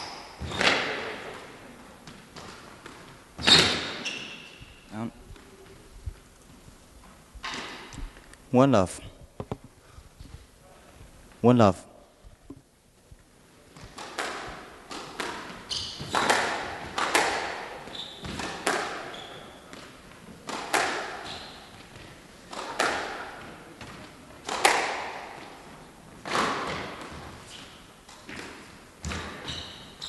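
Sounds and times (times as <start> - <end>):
shoes squeaking on wooden floor: 0.0 - 0.8, 2.3 - 8.2, 15.5 - 16.4, 17.8 - 20.2, 21.2 - 22.2, 29.0 - 30.0
squash ball hitting racket and walls: 0.0 - 5.9, 7.1 - 8.2, 13.6 - 30.0.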